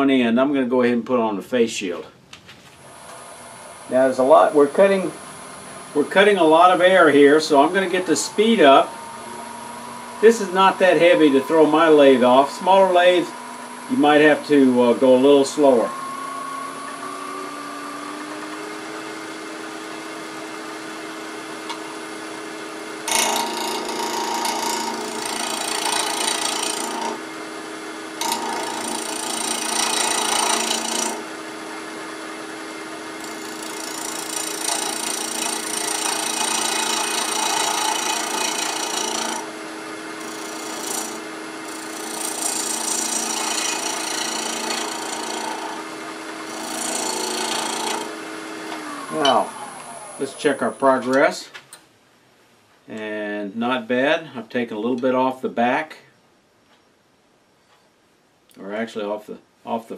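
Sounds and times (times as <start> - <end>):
wood lathe motor humming: 3.0 - 51.1
gouge cutting spinning wood: 4.2 - 51.1.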